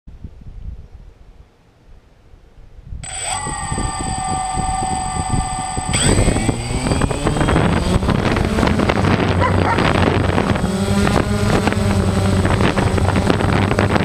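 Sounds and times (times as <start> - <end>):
wind buffeting microphone: 2.6 - 14.0
drone motors whining: 3.0 - 14.0.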